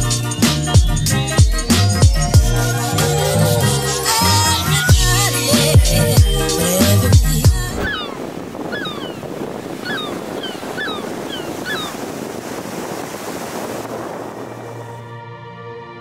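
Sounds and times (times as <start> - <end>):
ocean waves washing in: 6.6 - 15.2
bird chirping calls: 7.8 - 12.2.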